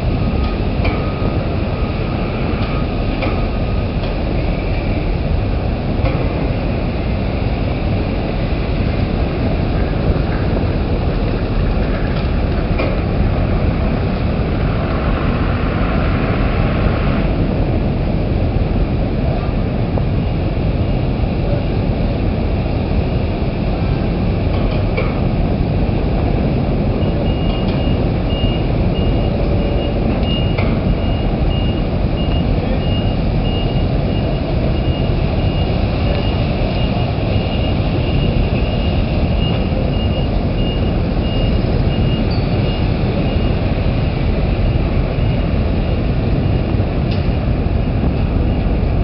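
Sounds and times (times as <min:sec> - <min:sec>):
reversing alarm beeping: 0:00.0 - 0:04.0, 0:26.9 - 0:43.7
loud steady low rumble: 0:00.0 - 0:49.0.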